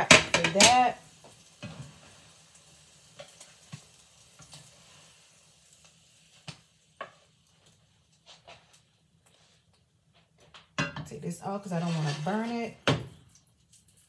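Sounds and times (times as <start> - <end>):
metal spatula tapping and scraping: 0.0 - 0.9, 10.4 - 13.1
butter sizzling in a frying pan: 0.0 - 14.0.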